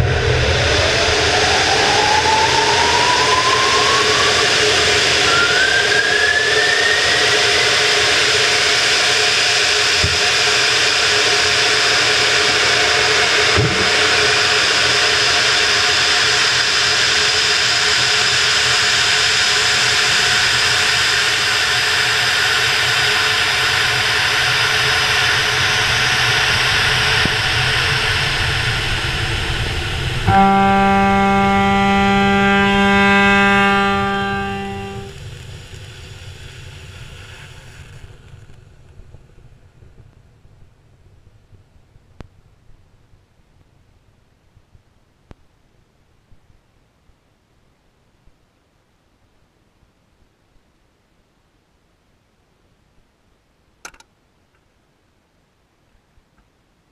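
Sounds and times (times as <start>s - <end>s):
rocket engine roar: 0.0s - 41.4s
thin rising whistle: 0.9s - 8.3s, 30.3s - 35.2s.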